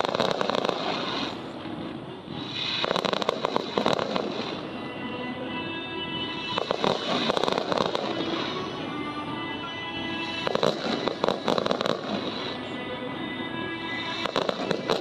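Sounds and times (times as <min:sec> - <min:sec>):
fireworks bursting and crackling: 0:00.0 - 0:15.0.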